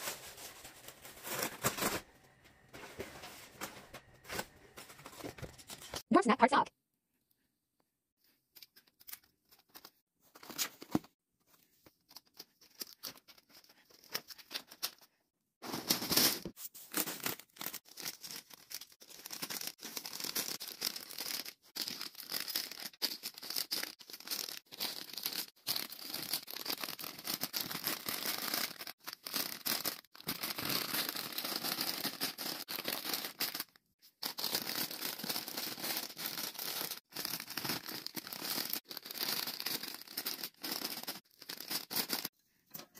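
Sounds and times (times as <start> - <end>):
plastic chip bags crinkling: 0.0 - 2.1, 15.6 - 42.3.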